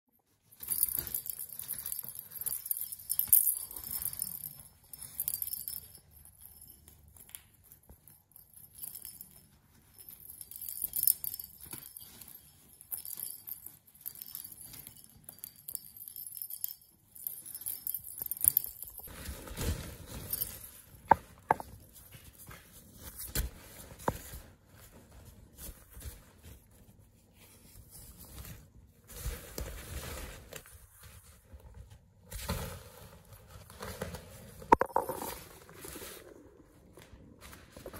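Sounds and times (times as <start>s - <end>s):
toy bell jingling: 0.5s - 7.4s, 8.0s - 19.1s.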